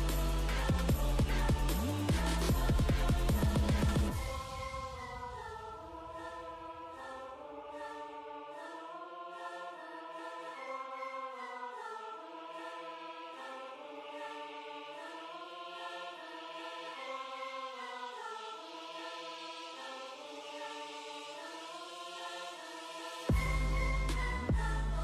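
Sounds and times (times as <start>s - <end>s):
deep bass: 0.0s - 4.2s, 23.3s - 25.0s
choir-like chords: 0.0s - 25.0s.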